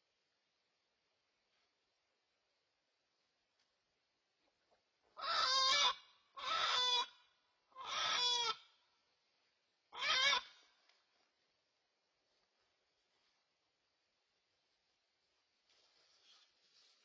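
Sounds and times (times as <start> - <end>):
chicken squawking in alarm: 5.2 - 7.1, 7.8 - 8.6, 10.0 - 10.5.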